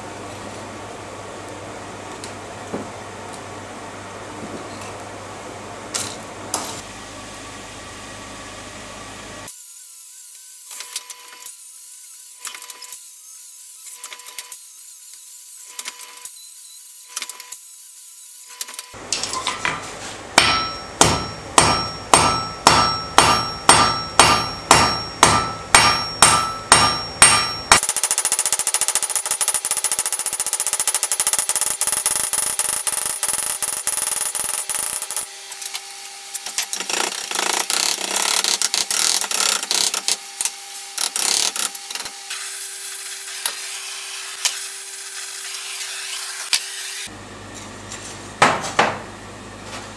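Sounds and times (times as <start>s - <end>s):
hammer striking steel on anvil: 19.1s - 28.0s.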